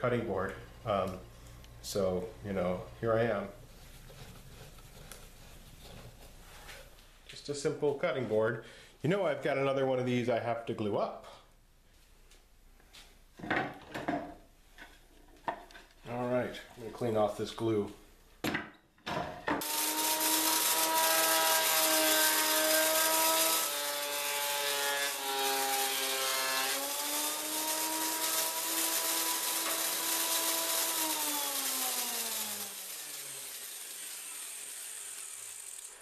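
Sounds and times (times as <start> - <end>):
motor winding down: 19.6 - 23.8, 26.7 - 36.0
thickness planer running: 19.6 - 36.0.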